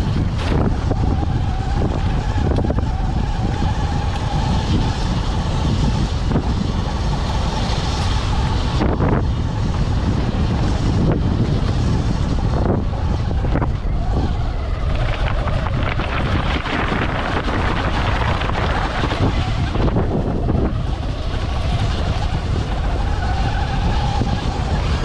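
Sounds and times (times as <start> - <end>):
wind on the microphone: 0.0 - 25.0
tyres rumbling on stones: 11.6 - 20.8.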